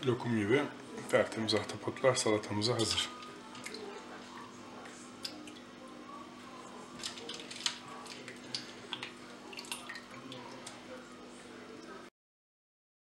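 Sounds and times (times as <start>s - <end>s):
faint steady hum: 0.0s - 12.1s
water sloshing and dripping: 3.5s - 4.0s, 7.0s - 10.8s
water splashes: 8.2s - 10.8s.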